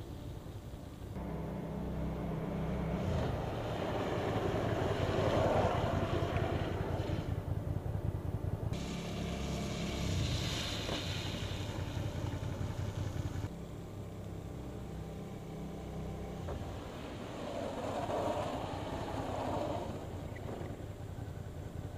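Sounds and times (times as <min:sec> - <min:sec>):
motorcycle engine running: 0:00.1 - 0:21.9
tyre hiss on wet pavement: 0:08.8 - 0:13.5, 0:16.8 - 0:20.5.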